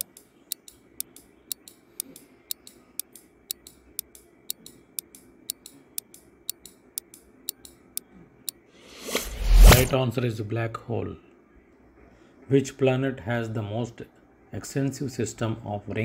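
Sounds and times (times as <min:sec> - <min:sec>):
clock ticking: 0:00.0 - 0:08.0.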